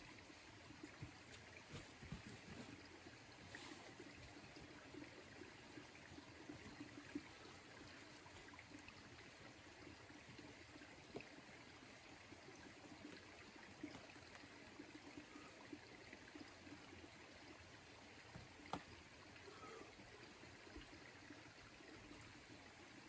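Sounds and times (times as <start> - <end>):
hands and shoes tapping rock: 1.0 - 2.8, 18.3 - 18.9.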